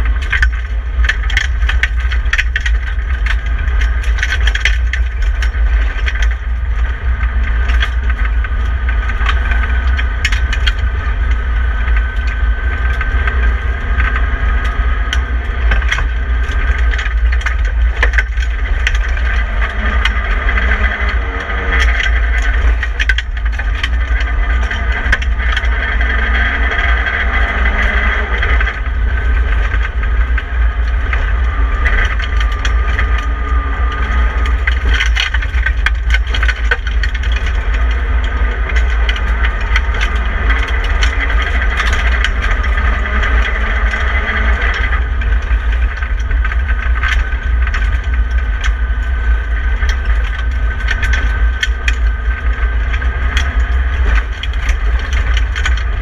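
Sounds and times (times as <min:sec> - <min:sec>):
car engine running hard: 0:00.0 - 0:56.0
gravel clattering against underbody: 0:00.0 - 0:56.0
low road rumble: 0:00.0 - 0:56.0.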